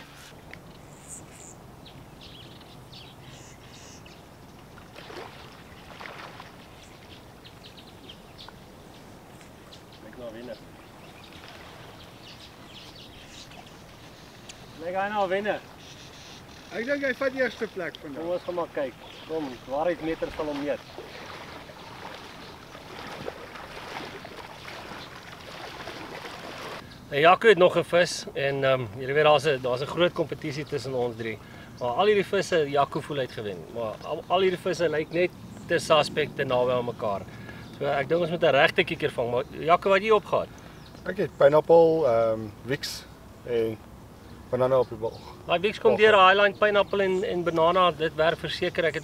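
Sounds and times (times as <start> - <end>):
light outdoor hiss: 0.0 - 49.0
small birds chirping: 0.0 - 49.0
faint water splashes: 1.4 - 26.9.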